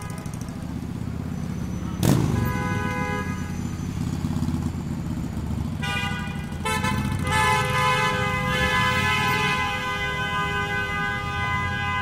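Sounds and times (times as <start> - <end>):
traffic engine rumble: 0.0 - 12.0
car horns honking: 1.8 - 3.8, 5.7 - 12.0.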